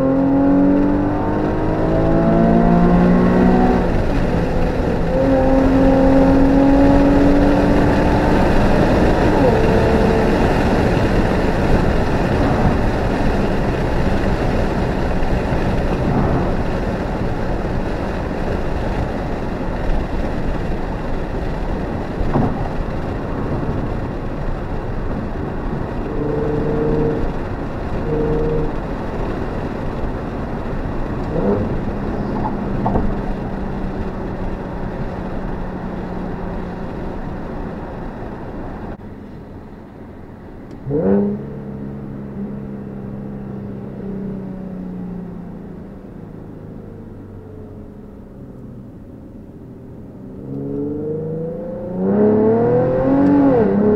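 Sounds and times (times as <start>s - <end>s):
engine revving: 0.0s - 19.7s, 21.8s - 29.6s, 31.1s - 36.8s, 40.8s - 42.6s, 50.4s - 53.9s
car engine drone: 0.0s - 53.9s
road noise: 0.0s - 53.9s.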